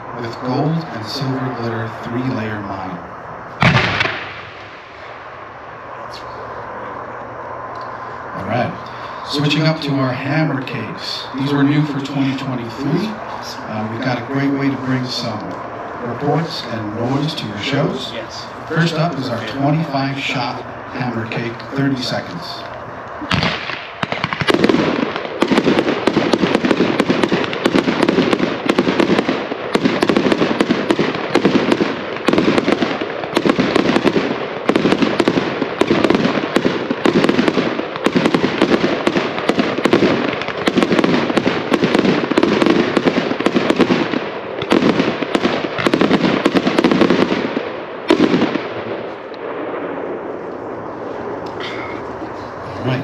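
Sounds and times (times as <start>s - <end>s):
fireworks barrage of reports: 0.0s - 53.0s
firework bang: 3.6s - 5.3s, 23.2s - 52.0s.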